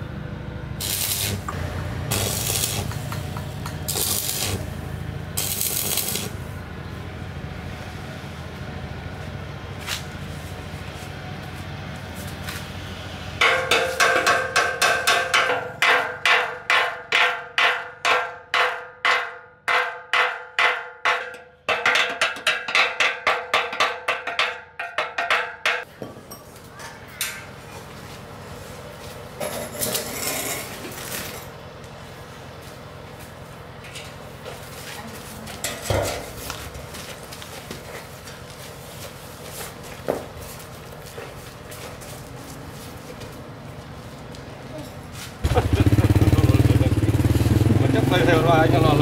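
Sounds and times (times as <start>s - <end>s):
hammer striking metal: 13.4s - 26.4s.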